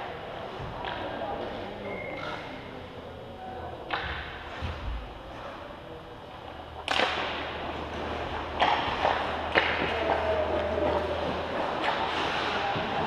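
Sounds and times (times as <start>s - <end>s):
steady low hum: 0.0s - 13.0s
hockey puck and stick cracks: 6.8s - 7.7s, 8.5s - 10.3s, 11.8s - 12.9s.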